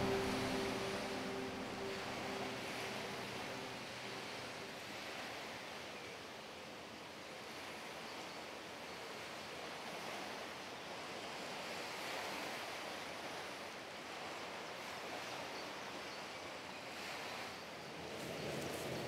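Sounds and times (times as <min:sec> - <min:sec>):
waves on open water: 0:00.0 - 0:19.0
wind: 0:00.0 - 0:19.0
soft rustles: 0:18.0 - 0:19.0.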